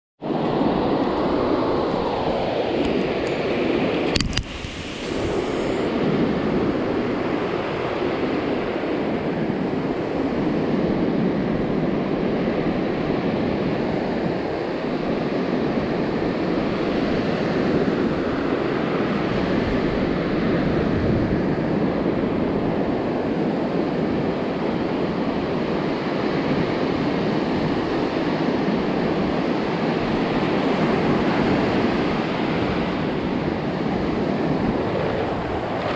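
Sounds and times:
ocean surf breaking on beach: 0.2s - 35.9s
sharp click: 4.1s - 5.2s.

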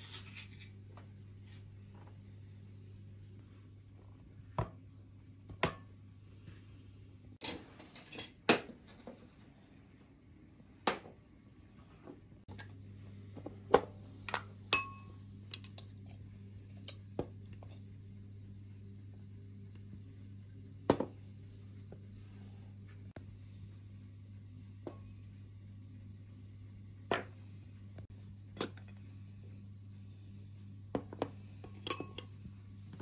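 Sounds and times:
low steady hum: 0.0s - 33.0s
tableware clinking and knocking: 7.4s - 8.6s, 31.0s - 32.3s.

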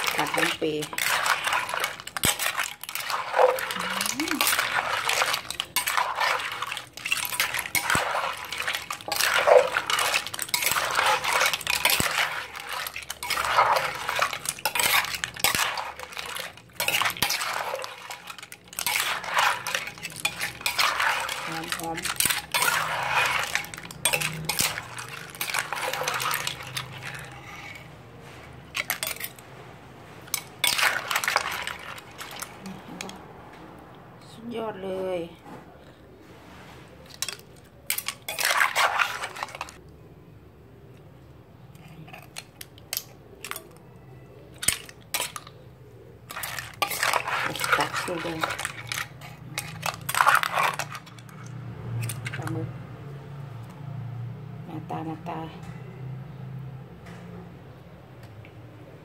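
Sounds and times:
metal spoon scraping clay mortar: 0.0s - 29.4s, 30.2s - 33.2s, 37.1s - 39.8s, 44.4s - 45.6s, 46.2s - 52.7s.

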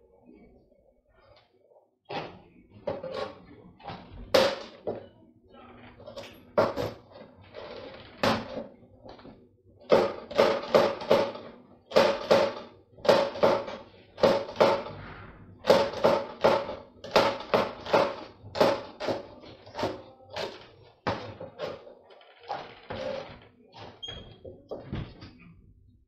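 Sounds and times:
knife chopping on plastic board: 9.8s - 14.9s, 15.6s - 21.8s.

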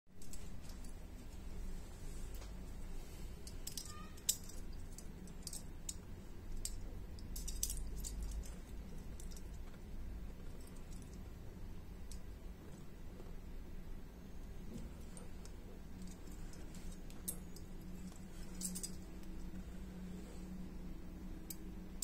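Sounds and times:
low steady rumble: 0.1s - 22.0s
metal parts clicking and clinking: 0.2s - 1.0s, 3.3s - 11.3s, 14.6s - 20.1s, 21.4s - 22.0s.

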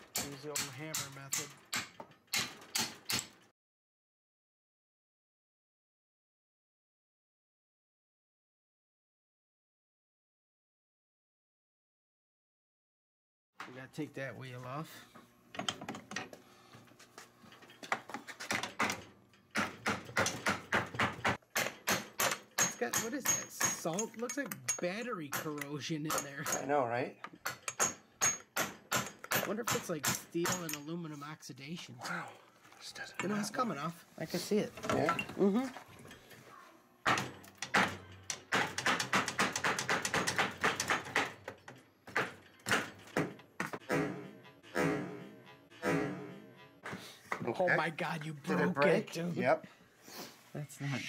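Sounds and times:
hammer striking metal bolt: 0.0s - 3.4s, 18.5s - 26.7s, 27.4s - 30.9s, 37.0s - 46.5s.

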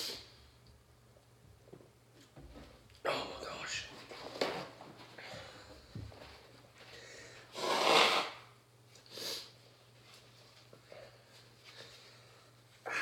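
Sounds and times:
sniff: 0.0s - 0.3s, 7.6s - 8.4s, 9.0s - 9.6s
person blowing nose: 7.5s - 8.5s.

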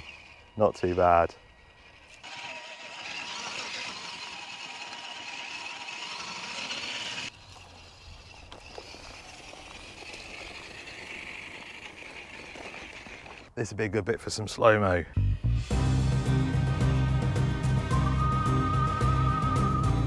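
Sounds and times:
rc car motor whining: 0.0s - 13.5s.

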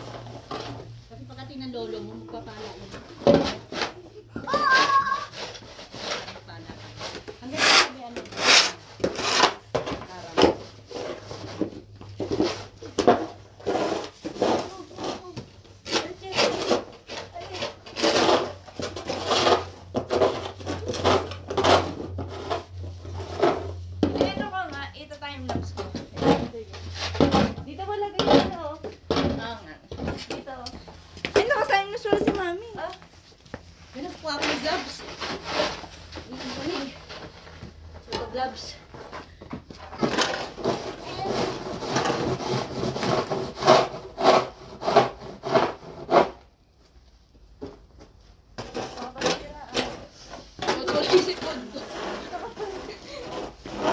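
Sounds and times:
snow shovel scraping snow: 4.5s - 9.6s, 40.1s - 46.4s, 50.8s - 53.9s.

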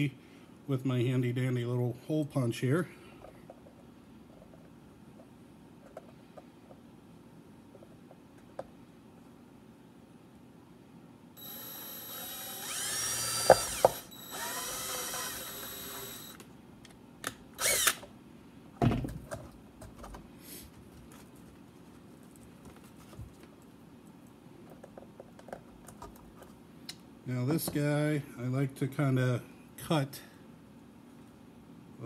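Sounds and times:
drill whining through plastic: 11.4s - 16.4s, 17.6s - 18.0s.

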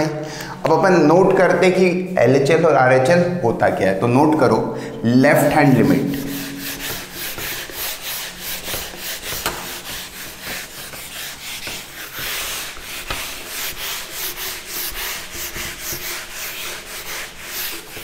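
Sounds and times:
eraser rubbing on whiteboard: 5.7s - 18.0s.

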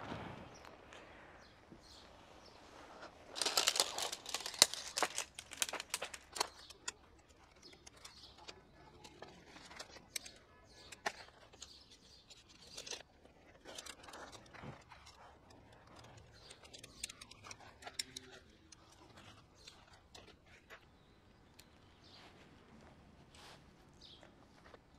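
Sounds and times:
groundsheet rustling: 2.0s - 21.0s
metal tent poles clacking: 3.4s - 20.6s.

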